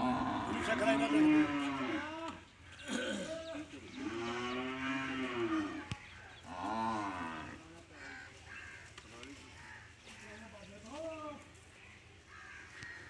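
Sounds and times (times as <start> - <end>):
cattle mooing: 0.0 - 2.4, 4.0 - 7.6.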